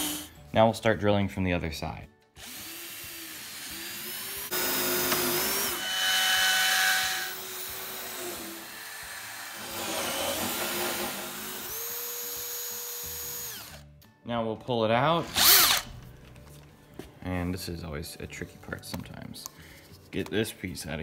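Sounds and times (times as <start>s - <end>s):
cordless drill cutting wood: 0.0s - 0.3s, 2.4s - 13.8s, 15.2s - 15.9s.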